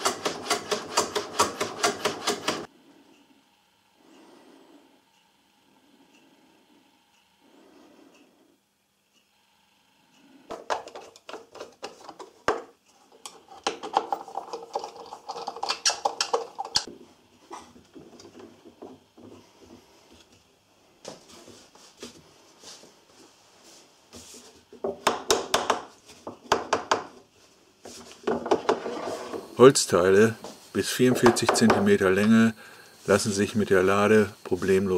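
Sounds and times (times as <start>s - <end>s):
wood and metal knocks and scrapes: 27.9s - 29.5s.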